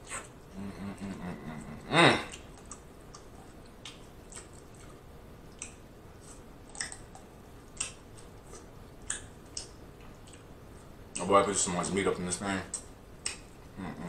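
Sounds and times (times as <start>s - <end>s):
wet chewing clicks: 2.3s - 11.3s.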